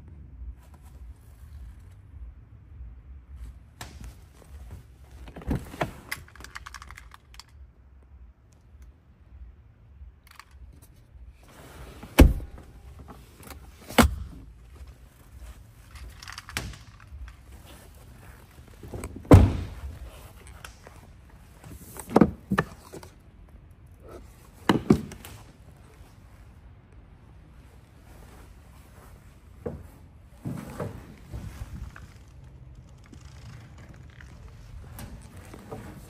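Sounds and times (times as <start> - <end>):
car doors and latches thunking: 11.8 - 14.5, 18.9 - 19.9.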